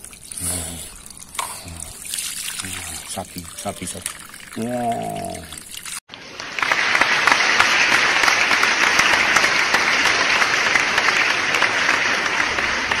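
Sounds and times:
water spattering on plastic toys: 0.0 - 6.0.

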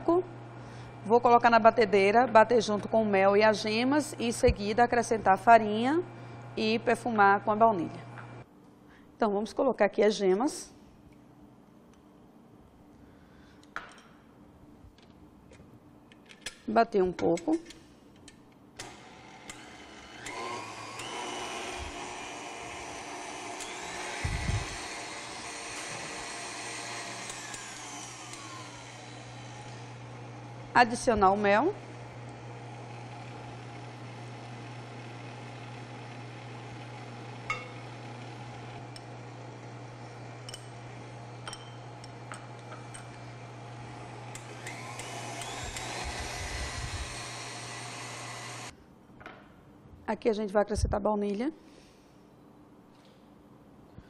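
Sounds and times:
stand mixer motor whine: 18.9 - 30.7, 31.8 - 48.7
spoon clinking on glass bowls: 41.5 - 41.8.

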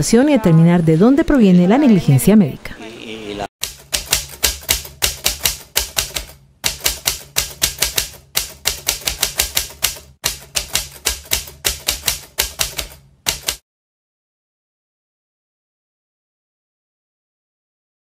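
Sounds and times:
typewriter keystrokes clattering: 3.6 - 13.6.

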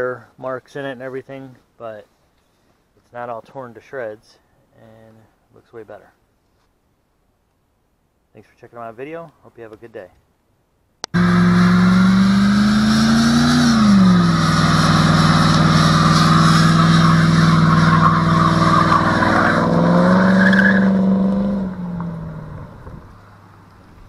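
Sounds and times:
car engine revving high: 11.1 - 23.1
tyres squealing on concrete: 15.0 - 21.2.

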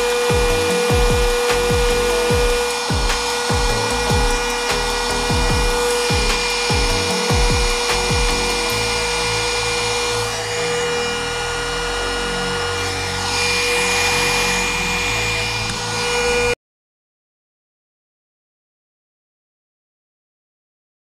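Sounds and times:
deep bass beat: 0.0 - 9.8
small electric motor whining: 0.0 - 16.6.

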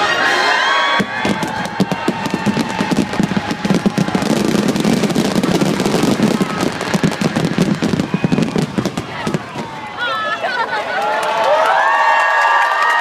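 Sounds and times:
fireworks bursting: 0.9 - 10.2.

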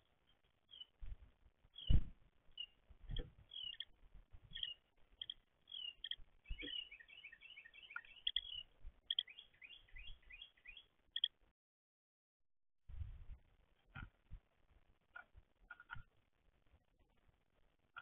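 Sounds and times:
songbirds chirping: 0.0 - 11.5
soft low thumps: 1.0 - 2.3.

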